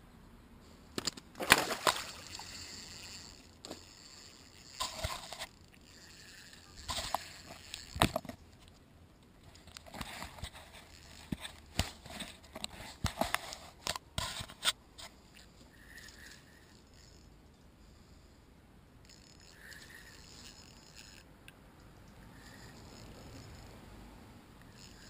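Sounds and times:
camera handling clicks and scrapes: 4.8s - 5.5s, 6.5s - 8.8s, 9.4s - 15.5s.

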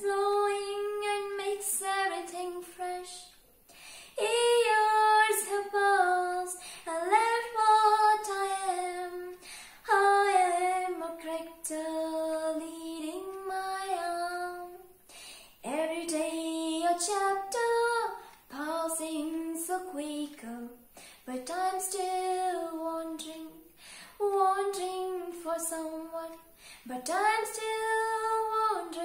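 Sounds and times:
woman singing unaccompanied: 0.0s - 3.4s, 4.2s - 14.9s, 15.6s - 23.6s, 24.2s - 29.0s.

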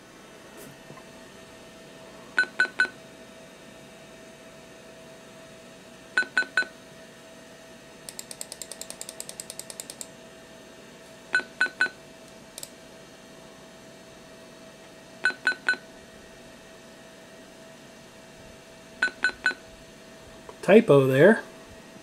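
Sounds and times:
faint steady hum: 0.0s - 22.0s
sharp ticks: 8.1s - 10.1s
computer speaker beeps: 11.4s - 12.0s, 15.3s - 15.8s, 19.0s - 19.6s.

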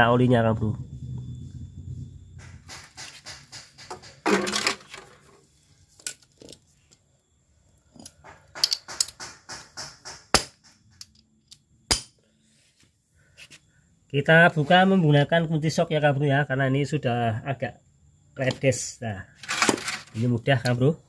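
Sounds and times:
metal tray clattering on paving: 2.7s - 5.3s, 19.4s - 20.2s.

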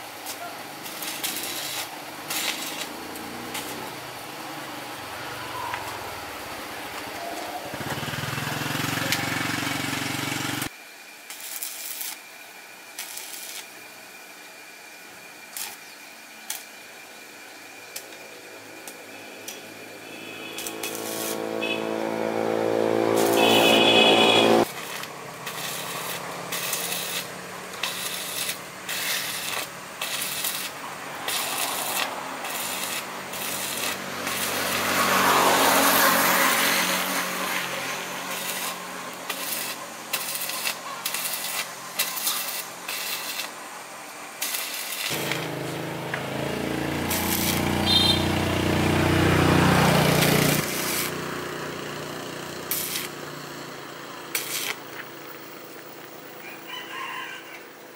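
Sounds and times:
motor-driven tool droning: 45.1s - 55.0s
clicks and scraping: 54.3s - 55.1s.

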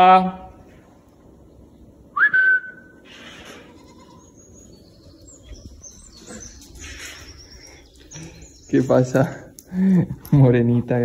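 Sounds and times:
held whistle: 2.2s - 3.0s
goats bleating: 3.3s - 4.4s.

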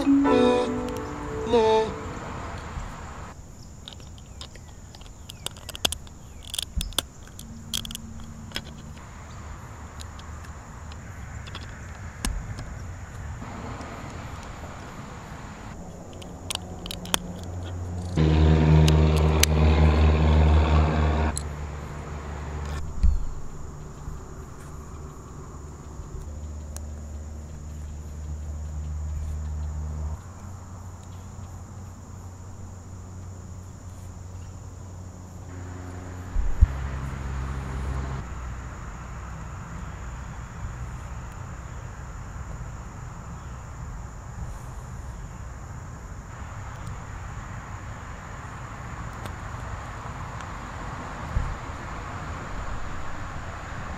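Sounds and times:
vehicle engine: 0.0s - 3.3s, 13.3s - 30.2s, 35.5s - 40.4s
outdoor background noise: 0.0s - 53.9s
plastic bricks clicking together: 3.8s - 8.8s.

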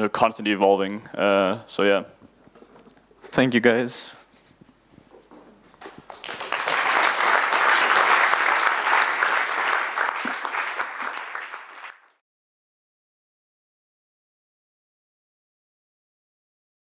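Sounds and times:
audience applauding: 5.8s - 12.2s.

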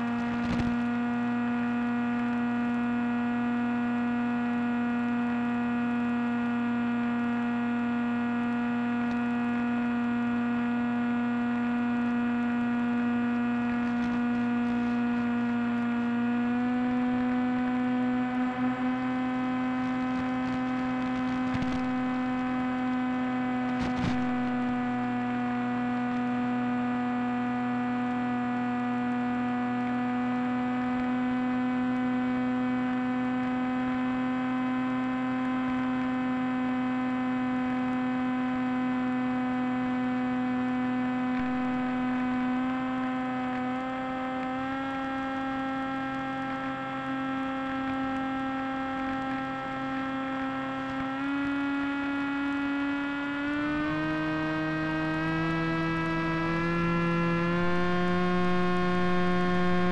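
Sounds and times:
radio crackles: 0.0s - 3.0s, 7.4s - 16.5s, 17.1s - 26.4s, 39.1s - 43.8s
electric motor and propeller buzzing: 0.0s - 59.9s.

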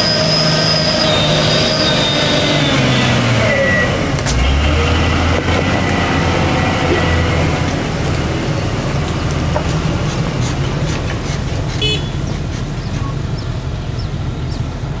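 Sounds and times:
high horn toot: 0.0s - 4.0s, 11.8s - 12.2s
diesel truck engine rumbling: 0.0s - 15.0s.

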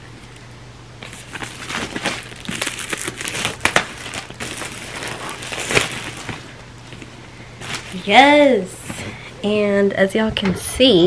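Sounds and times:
plastic shrink wrap crinkling: 1.0s - 9.1s.

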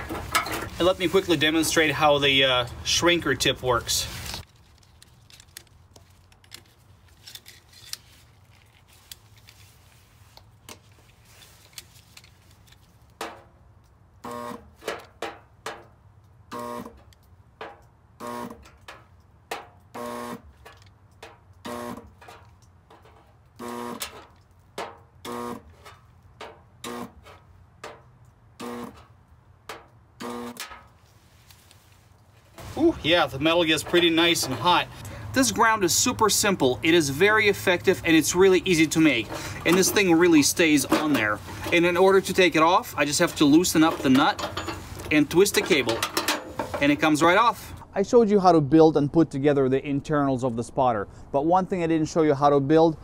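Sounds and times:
short electric buzzes: 14.2s - 14.8s, 16.5s - 17.0s, 18.2s - 18.7s, 19.9s - 20.6s, 21.6s - 22.1s, 23.6s - 24.2s, 25.2s - 25.8s, 26.8s - 27.3s, 28.6s - 29.1s, 30.2s - 30.6s.

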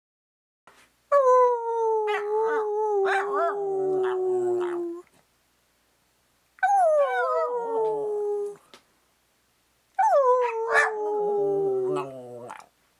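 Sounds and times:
dog howling calls: 10.0s - 12.6s.

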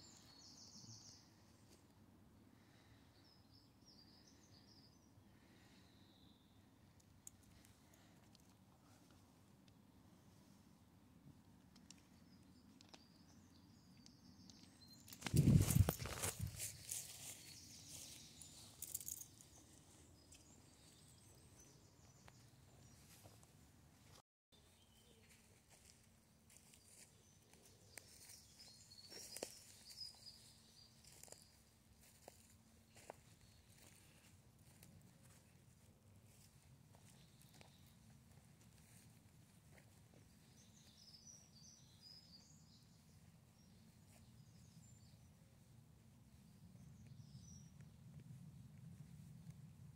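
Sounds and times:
faint outdoor background: 0.0s - 49.9s
dry leaves rustling and crunching: 15.2s - 17.5s.

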